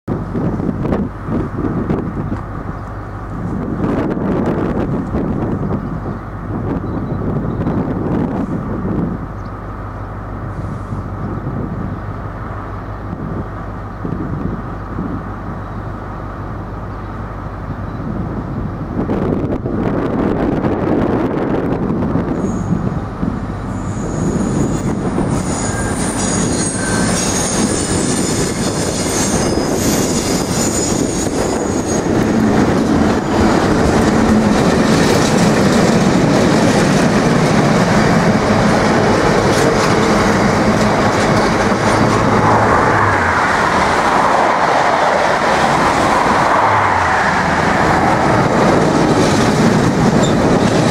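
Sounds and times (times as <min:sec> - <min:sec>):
diesel locomotive engine: 0:00.1 - 0:50.9
high wheel squeal: 0:23.7 - 0:35.5, 0:50.1 - 0:50.9.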